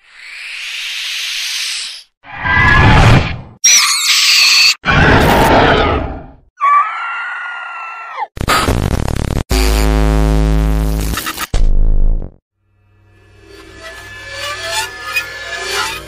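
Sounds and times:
shrill high shriek: 3.6 - 4.8, 13.2 - 16.0
harsh scream: 4.8 - 8.3
drawn-out wailing cry: 6.6 - 8.3
choppy crackling noise: 8.4 - 11.2.

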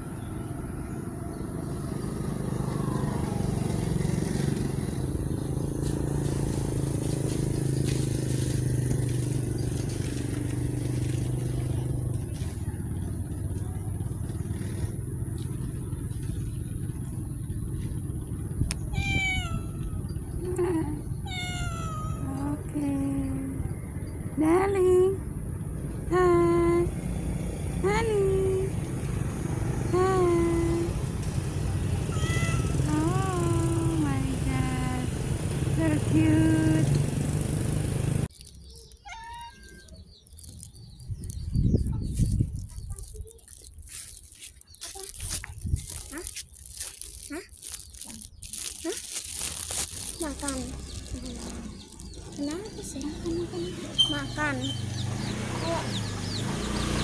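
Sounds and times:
low traffic rumble: 0.0 - 57.0
cat meowing: 18.8 - 20.1, 21.2 - 22.4, 32.0 - 33.2, 39.0 - 40.0
faint high bird chirps: 38.3 - 49.0, 50.0 - 56.9.

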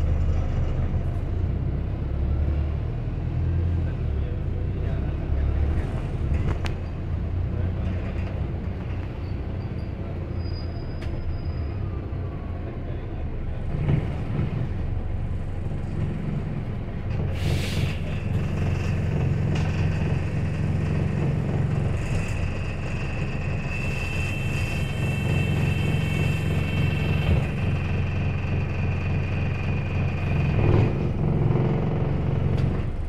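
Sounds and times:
bus engine humming: 0.0 - 33.0
hiss of released air: 17.4 - 18.0.

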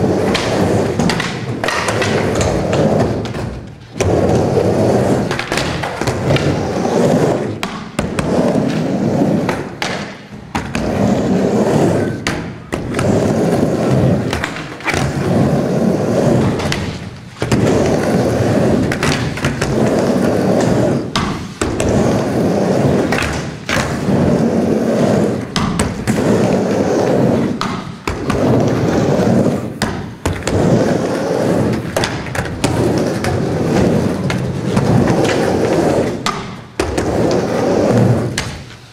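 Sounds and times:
skateboard clacking: 0.0 - 38.9
skateboard wheels rumbling on ramp: 0.0 - 38.9.

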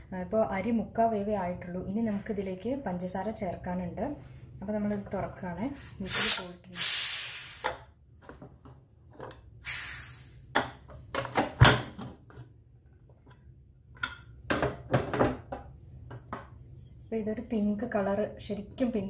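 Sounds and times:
steam hissing: 6.0 - 7.7, 9.6 - 10.5.

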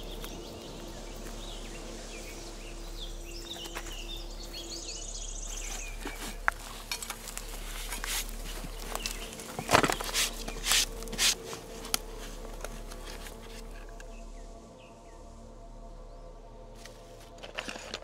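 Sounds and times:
low steady hum: 0.0 - 18.0
small birds chirping: 0.0 - 18.0
shovel scraping and chopping soil: 5.6 - 14.0, 16.8 - 18.0.

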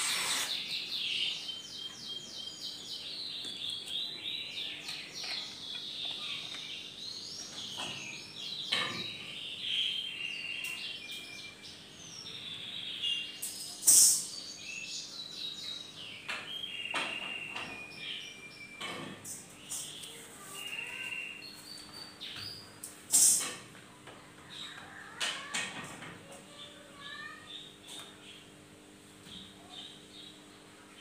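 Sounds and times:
sharp hissing scrape: 0.0 - 0.7, 13.8 - 14.4, 23.1 - 23.6
small birds chirping: 0.0 - 25.6, 26.2 - 31.0.

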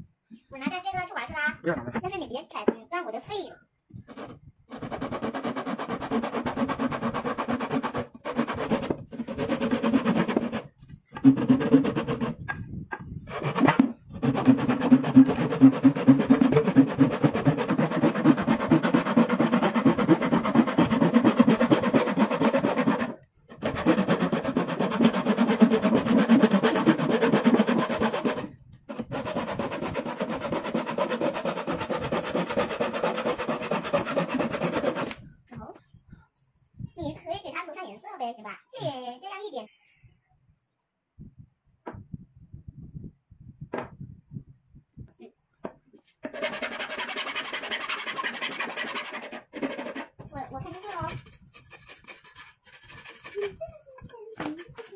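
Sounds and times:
hand saw cutting wood: 4.1 - 35.2, 46.2 - 53.6, 54.3 - 54.9.

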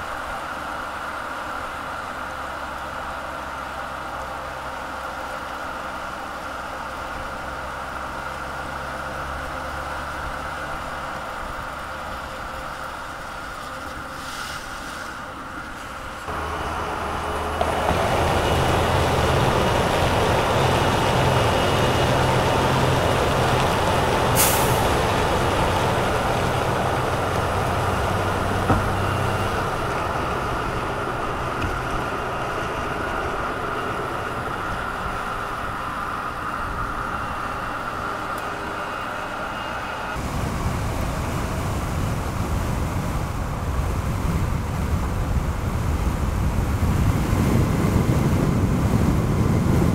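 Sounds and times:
tyre and road noise: 0.0 - 49.9
brief sharp hiss: 14.1 - 16.0.

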